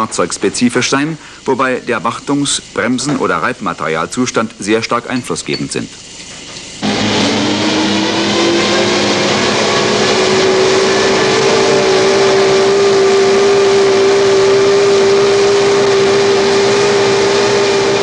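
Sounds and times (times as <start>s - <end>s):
machine hum: 0.0s - 18.0s
dense rushing noise: 6.8s - 18.0s.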